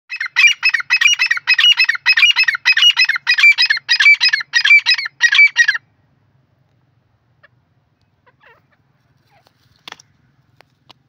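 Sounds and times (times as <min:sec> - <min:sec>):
bird calling rhythmically: 0:00.1 - 0:05.9, 0:07.3 - 0:09.5.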